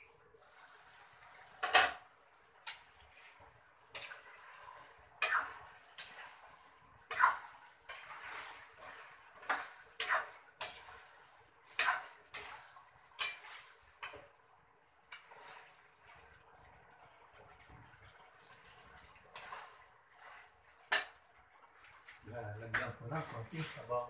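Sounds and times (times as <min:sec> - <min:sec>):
faint sizzle: 0:00.0 - 0:24.0
utensil scraping a frying pan: 0:02.6 - 0:16.4, 0:19.2 - 0:24.0.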